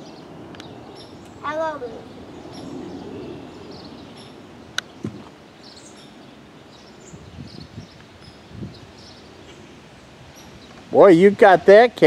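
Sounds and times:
soft thump: 0:05.0 - 0:05.3.

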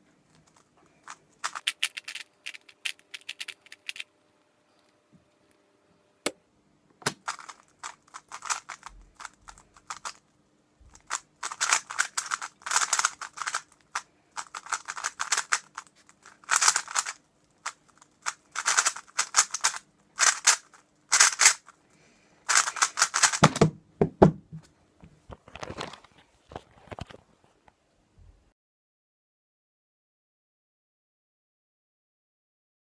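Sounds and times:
puzzle cube clicking turns: 0:00.3 - 0:04.1, 0:07.0 - 0:10.2, 0:10.9 - 0:21.7, 0:22.5 - 0:23.6.

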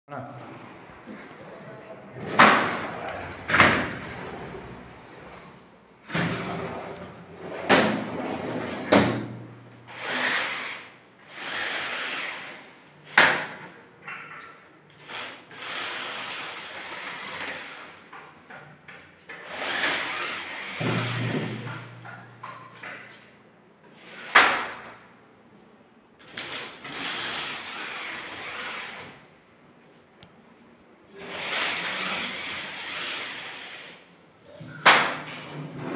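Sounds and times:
frames sliding along tracks: 0:02.2 - 0:09.1.

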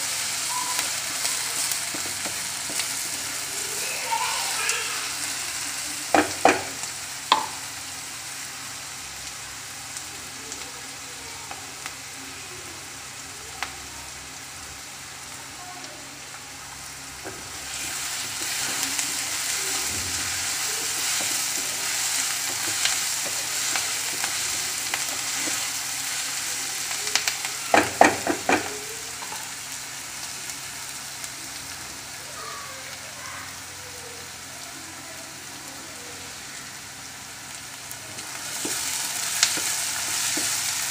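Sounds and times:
onions sizzling in oil: 0:00.0 - 0:40.9
wooden spatula stirring: 0:17.3 - 0:25.8.

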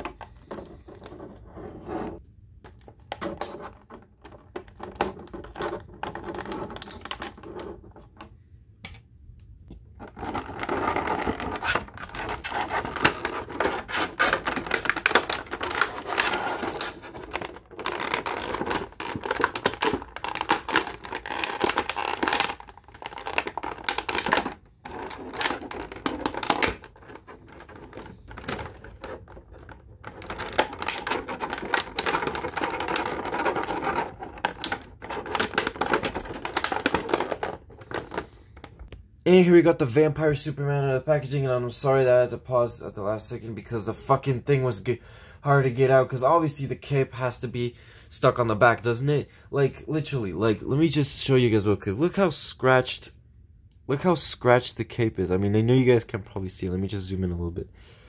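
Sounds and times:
plastic blister tray crackling: 0:09.9 - 0:38.9.

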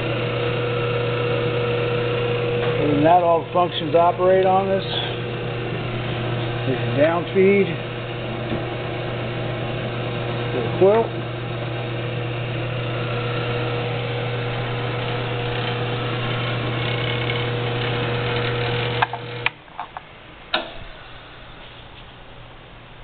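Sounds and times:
drill press motor humming: 0:00.0 - 0:19.6
sharp clicks and knocks: 0:18.4 - 0:20.8.

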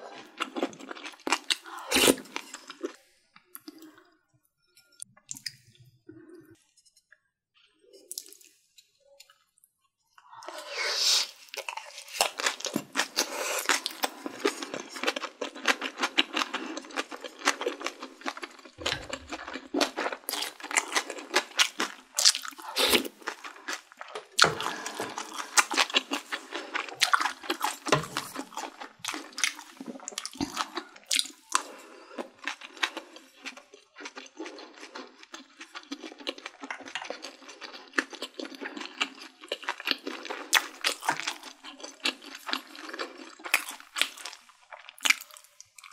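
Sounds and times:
wet chewing: 0:11.3 - 0:45.9.

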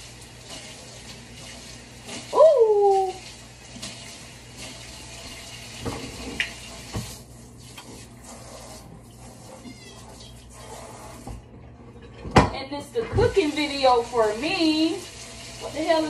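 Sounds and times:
tap running into sink: 0:03.7 - 0:08.0, 0:12.2 - 0:13.6.

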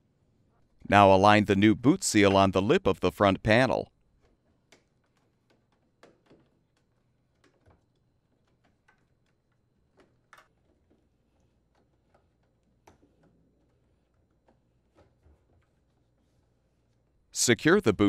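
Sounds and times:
faint clicks and rubs of rubber: 0:04.0 - 0:17.2.

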